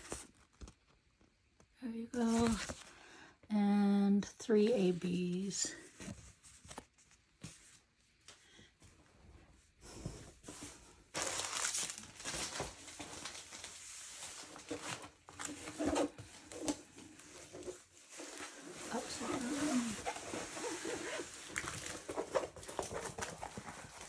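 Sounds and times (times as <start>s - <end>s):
plastic packaging crinkling: 11.1s - 24.0s.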